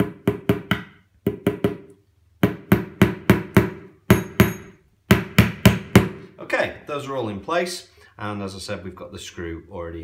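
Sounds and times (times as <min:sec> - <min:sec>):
hammer tapping a nail: 0:00.0 - 0:06.2.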